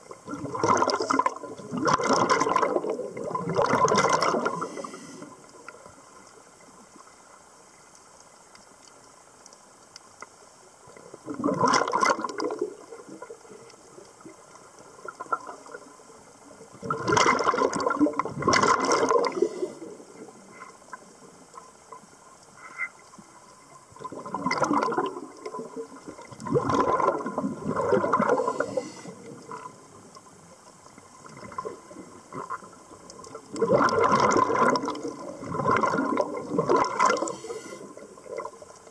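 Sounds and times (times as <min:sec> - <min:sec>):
scuba regulator exhaust bubbles: 0:00.0 - 0:05.9, 0:11.0 - 0:13.6, 0:16.7 - 0:20.4, 0:23.9 - 0:29.9, 0:31.2 - 0:38.9.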